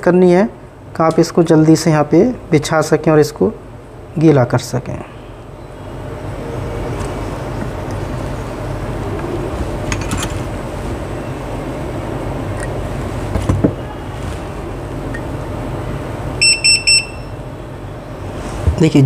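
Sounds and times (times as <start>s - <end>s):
low background hum: 0.0s - 19.0s
sharp electronic beeps: 16.4s - 17.4s.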